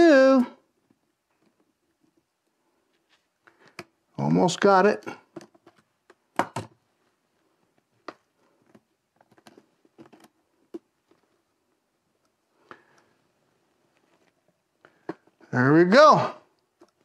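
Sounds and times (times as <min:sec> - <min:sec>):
gloved hands handling noise: 0:05.1 - 0:15.6.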